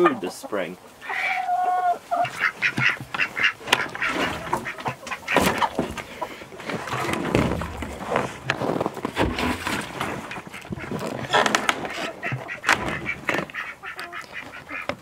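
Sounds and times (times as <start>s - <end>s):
poultry calling: 0.0s - 7.2s, 10.1s - 15.0s
footsteps crunching on snow: 6.6s - 14.9s.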